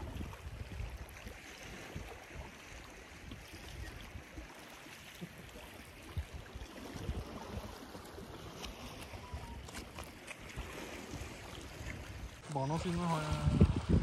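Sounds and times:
wind buffeting microphone: 0:00.0 - 0:02.6, 0:10.6 - 0:14.0
lake water washing on rocks: 0:00.0 - 0:14.0.

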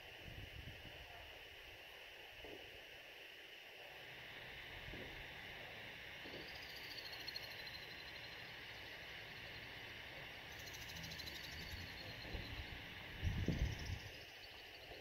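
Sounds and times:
steady hiss: 0:00.0 - 0:15.0
high-pitched pulsing chirps: 0:06.3 - 0:09.8, 0:10.5 - 0:15.0.

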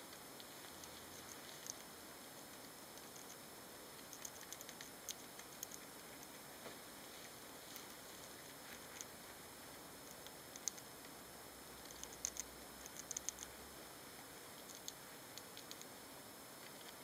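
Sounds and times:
steady hiss: 0:00.0 - 0:17.0
hamsters clicking and scratching: 0:00.4 - 0:03.4, 0:04.0 - 0:06.5, 0:07.2 - 0:09.2, 0:10.0 - 0:11.1, 0:11.8 - 0:13.6, 0:14.5 - 0:15.9, 0:16.6 - 0:17.0.

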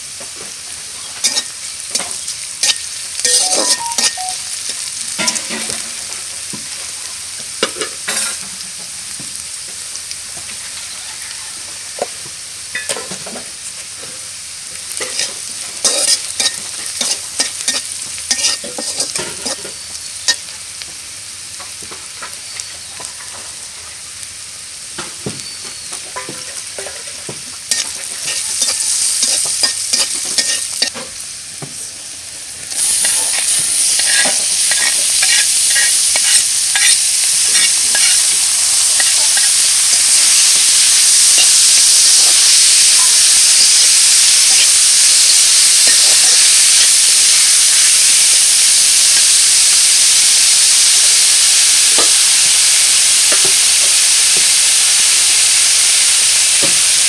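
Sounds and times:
vegetables sizzling in hot oil: 0:00.0 - 0:57.0
metal spatula scraping pan: 0:01.2 - 0:04.3, 0:15.0 - 0:19.7, 0:27.7 - 0:30.9, 0:33.0 - 0:38.3.

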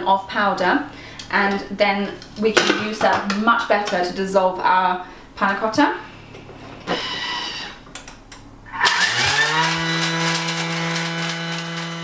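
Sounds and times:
blender motor whining: 0:06.9 - 0:07.8, 0:08.7 - 0:12.0.

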